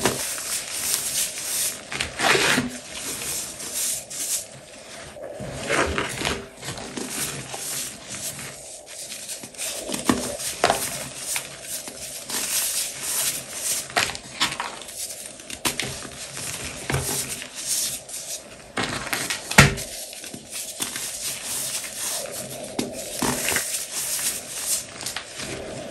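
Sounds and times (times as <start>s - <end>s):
hands crushing chalk: 0.0s - 4.6s, 5.8s - 25.9s.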